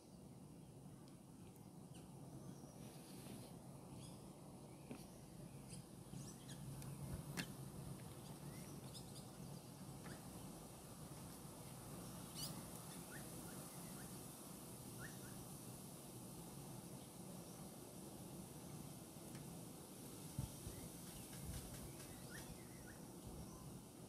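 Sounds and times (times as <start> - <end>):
background hiss: 0.0 - 24.0
bird chirps: 12.0 - 14.2, 15.0 - 15.4, 20.7 - 23.8.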